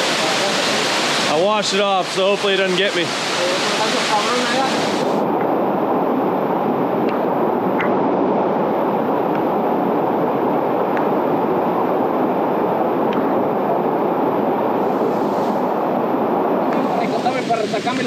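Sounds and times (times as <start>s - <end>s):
waterfall pouring over rocks: 0.0s - 5.2s, 16.6s - 18.0s.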